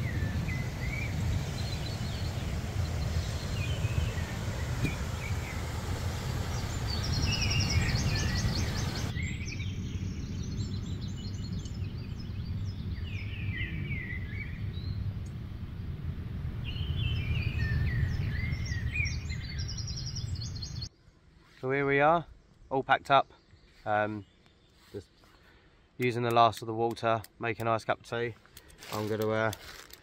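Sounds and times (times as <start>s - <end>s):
songbirds singing: 0.0s - 15.3s, 16.6s - 30.0s
steady low rumble: 0.0s - 20.9s.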